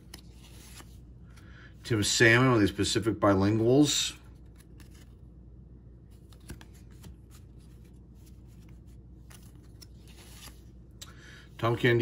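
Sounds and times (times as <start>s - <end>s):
cards rustling and clicking: 0.0s - 1.5s, 4.2s - 5.3s, 6.0s - 11.2s
low steady hum: 0.0s - 12.0s.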